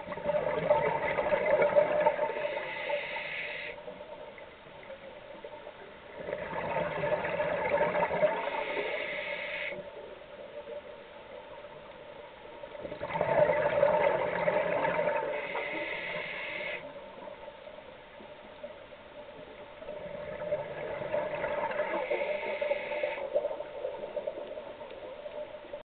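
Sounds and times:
rush of bubbles: 0:00.0 - 0:02.7, 0:06.2 - 0:08.7, 0:12.8 - 0:15.6, 0:19.9 - 0:24.8
diver breathing through regulator: 0:02.3 - 0:03.8, 0:08.4 - 0:09.8, 0:15.2 - 0:16.9, 0:21.9 - 0:23.4.

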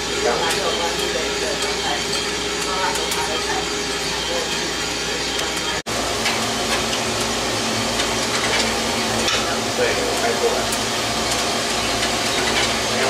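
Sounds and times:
coffee roaster whirring: 0:00.0 - 0:13.0.

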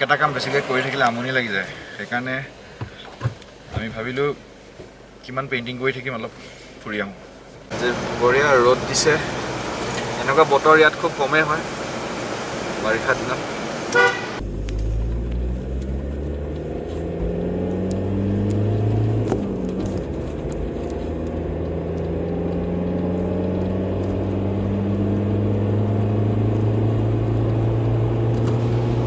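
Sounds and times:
diesel engine from inside cabin: 0:07.7 - 0:29.0.

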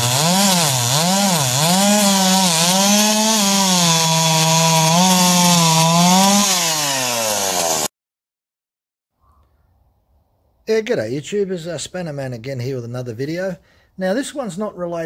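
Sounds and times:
chainsaw cutting through log: 0:00.0 - 0:07.9.

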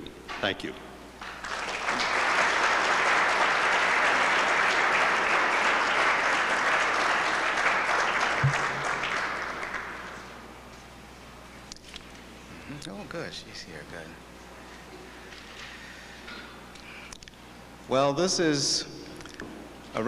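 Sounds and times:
audience applauding: 0:01.2 - 0:10.4.

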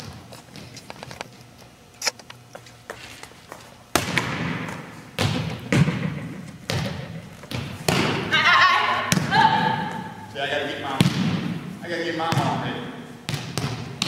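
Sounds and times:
volleyball thuds echoing in gym: 0:02.9 - 0:14.0.

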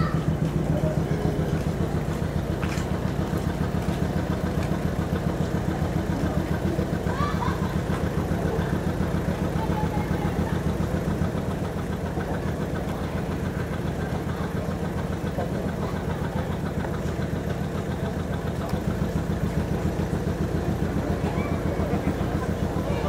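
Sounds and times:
vehicle engine idling: 0:00.0 - 0:23.0.

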